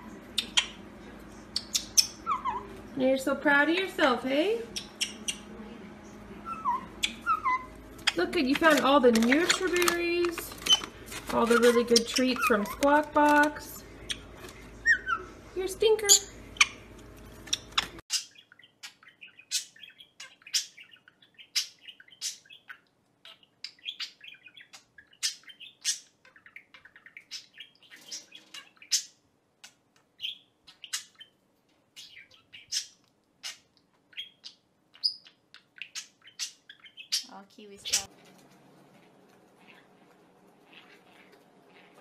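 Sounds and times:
budgerigar chirping: 0:00.3 - 0:00.8, 0:01.5 - 0:02.7, 0:04.7 - 0:05.5, 0:06.4 - 0:09.7, 0:16.0 - 0:29.2, 0:30.2 - 0:31.4, 0:32.0 - 0:38.1.

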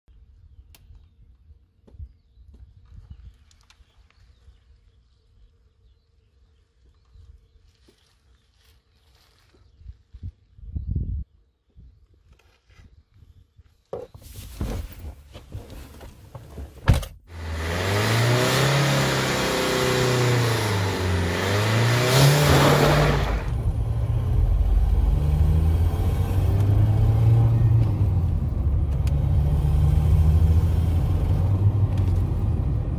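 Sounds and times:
diesel engine revving: 0:17.3 - 0:32.9.

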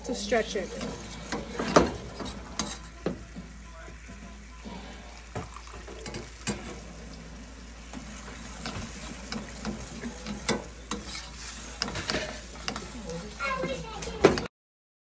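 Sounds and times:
metal spoon scraping a pan: 0:00.0 - 0:03.5, 0:05.8 - 0:07.0, 0:08.0 - 0:14.5
sauce sizzling in a pan: 0:00.0 - 0:14.5.

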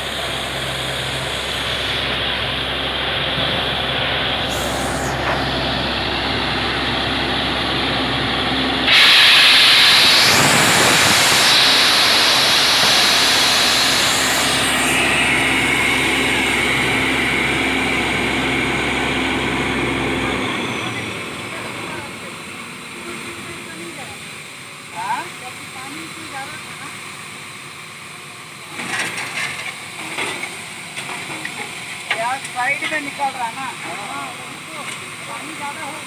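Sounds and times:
drilling rig engine running: 0:00.0 - 0:32.4
compressed air hissing: 0:04.4 - 0:05.2, 0:08.9 - 0:20.2.

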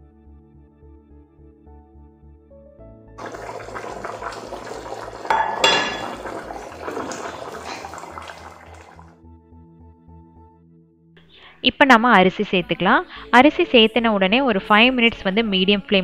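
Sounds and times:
soft background music: 0:00.0 - 0:16.0
broth boiling vigorously: 0:03.2 - 0:09.1
cast-iron lid clank: 0:05.2 - 0:07.0.

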